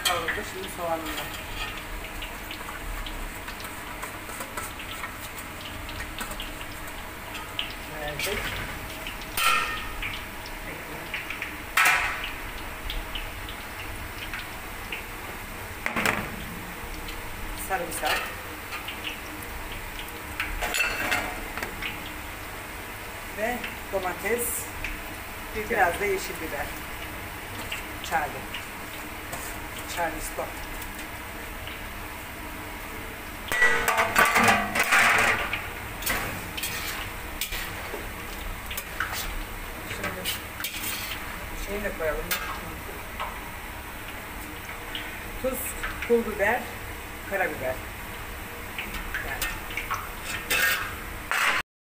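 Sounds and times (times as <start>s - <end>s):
meat and onions frying: 0.0s - 51.6s
metal tray scraping steel pot: 36.6s - 37.8s, 40.0s - 41.3s, 50.2s - 51.6s
metal spoon stirring in pot: 36.6s - 41.4s, 49.3s - 51.0s.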